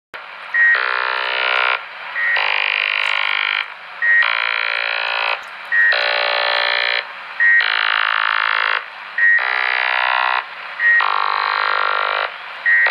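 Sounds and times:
radio signal chirping notes: 5.4s - 6.2s.

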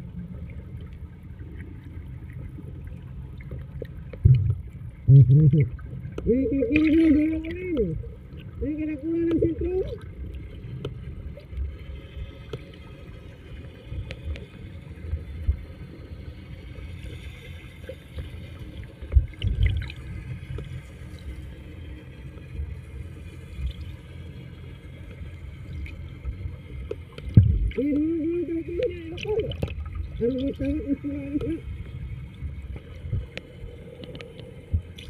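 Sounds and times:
low rumble: 0.0s - 12.4s, 18.8s - 23.9s, 24.9s - 35.0s.

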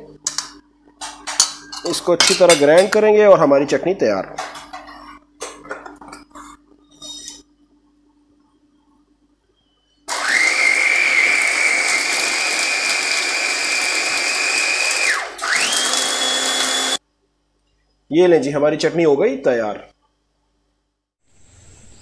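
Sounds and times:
electric chopper motor whining: 10.1s - 17.0s.

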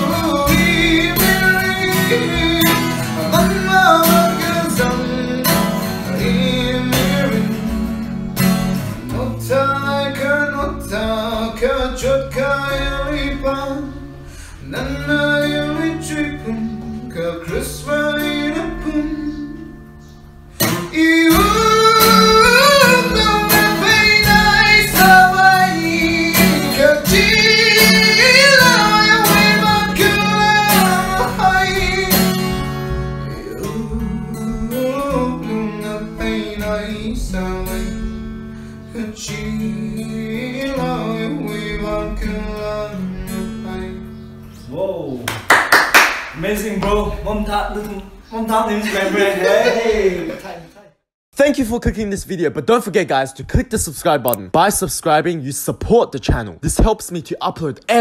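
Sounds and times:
man singing: 0.0s - 19.9s, 20.6s - 44.2s
acoustic guitar strumming: 0.0s - 50.4s.

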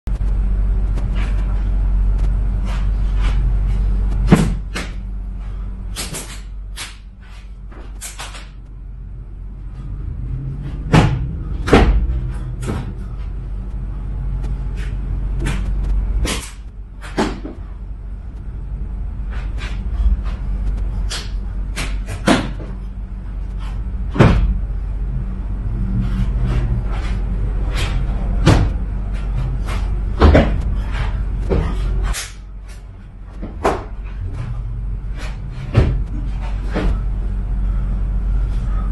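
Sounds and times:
steady low hum: 0.0s - 38.9s
sharp slaps: 4.2s - 5.0s, 5.9s - 7.1s, 7.9s - 8.6s, 10.9s - 12.9s, 15.4s - 17.6s, 21.1s - 22.7s, 32.0s - 32.4s.

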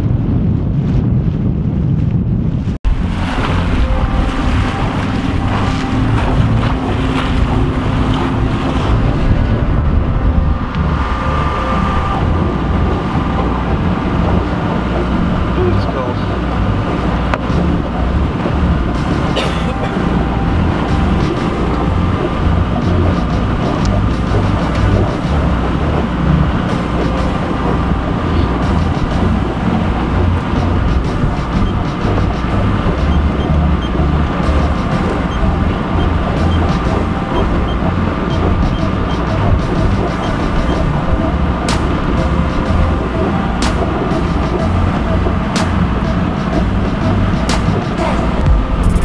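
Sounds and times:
water rushing along hull: 0.0s - 49.0s
wind buffeting microphone: 0.0s - 49.0s.

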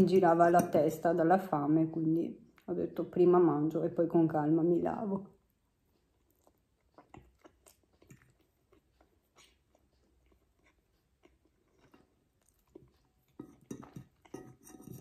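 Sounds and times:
person chewing: 5.7s - 15.0s.

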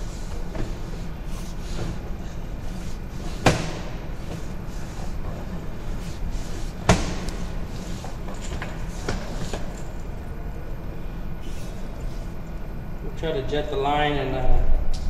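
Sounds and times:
sharp knocks: 6.8s - 7.3s.

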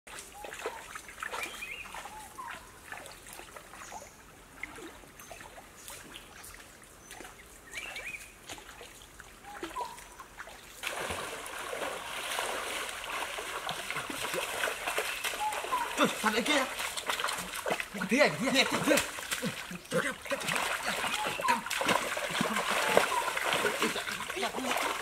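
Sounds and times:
stream trickling over rocks: 0.1s - 25.0s
loud splashing water: 10.8s - 25.0s.

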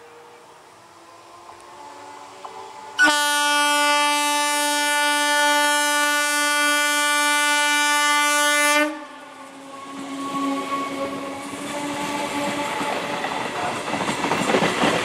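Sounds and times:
train horn blast: 2.6s - 13.8s.

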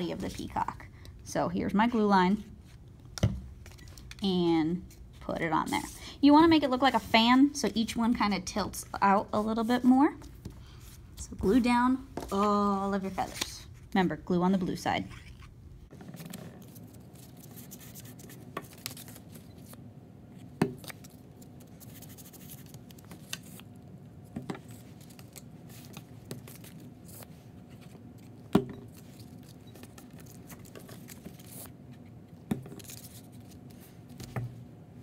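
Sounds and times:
paper rubbing and rustling: 16.0s - 19.8s, 20.9s - 23.7s.

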